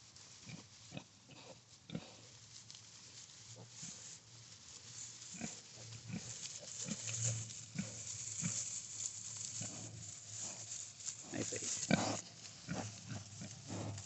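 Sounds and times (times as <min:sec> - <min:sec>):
pigs grunting: 0:11.2 - 0:14.0.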